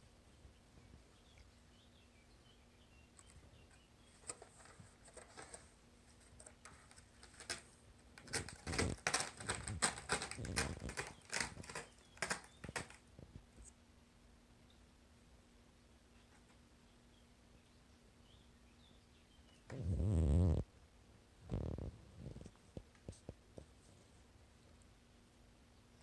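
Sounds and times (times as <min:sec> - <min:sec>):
cat clawing scratching board: 0:04.1 - 0:13.0.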